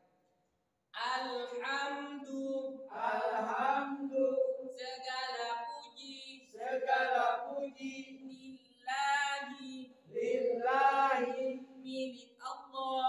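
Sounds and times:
group of voices chanting: 2.9 - 4.3, 6.5 - 8.2, 10.1 - 11.7.

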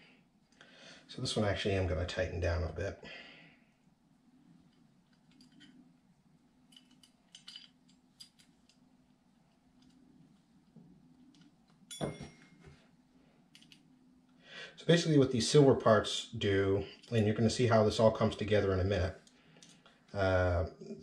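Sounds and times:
faint steady hum: 0.0 - 21.0
small screws and tool clinking: 4.7 - 5.8, 6.7 - 8.8.

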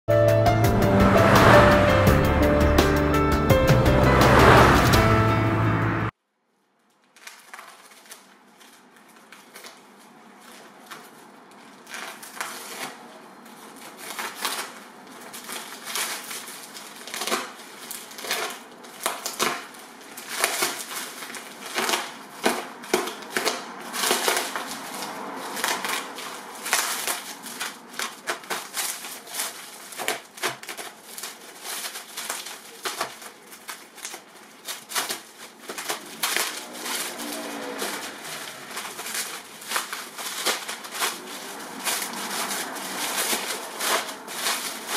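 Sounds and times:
plastic crinkling and crackling: 6.4 - 44.9.

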